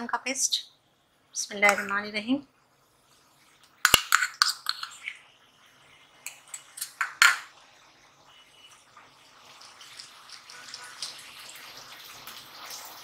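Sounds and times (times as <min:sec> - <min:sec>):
onions sizzling in oil: 0:04.6 - 0:13.0.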